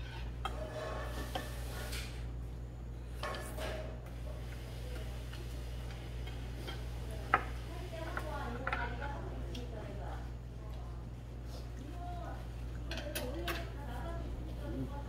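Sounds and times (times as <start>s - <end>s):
spoon and chopsticks scraping steel bowl: 0.0s - 2.2s.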